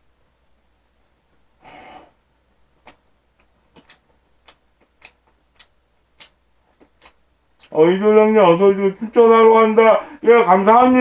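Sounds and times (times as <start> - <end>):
quiet chewing: 2.8 - 7.8.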